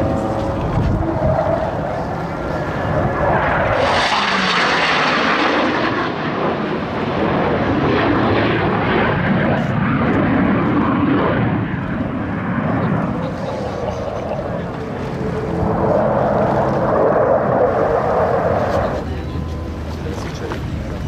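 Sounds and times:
jet flying past: 0.0 - 21.0.

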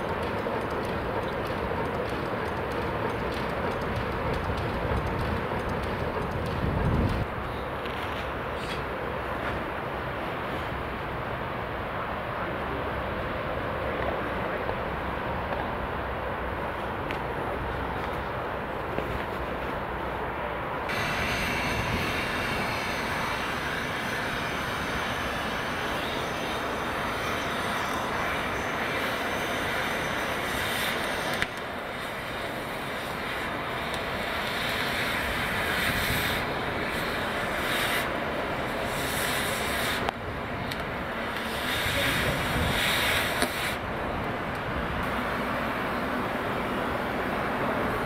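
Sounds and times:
gas cutting torch hissing: 20.9 - 40.1, 41.2 - 43.8.

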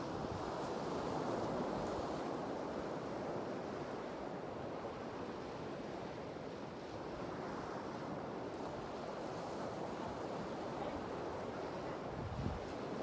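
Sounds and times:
wind buffeting microphone: 12.1 - 13.0.

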